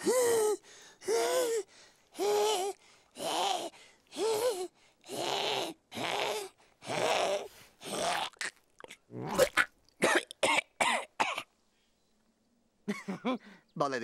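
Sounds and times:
cartoon cat hacking and retching: 5.2s - 10.4s.

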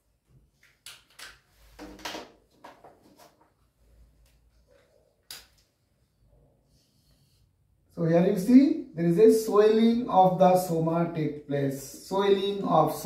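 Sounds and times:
marker writing on a whiteboard: 6.6s - 7.6s.

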